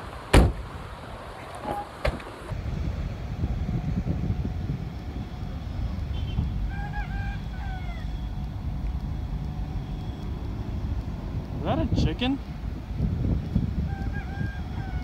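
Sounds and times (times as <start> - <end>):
wind rumble on microphone: 0.0 - 15.0
rooster crowing: 6.7 - 8.3, 13.8 - 15.0.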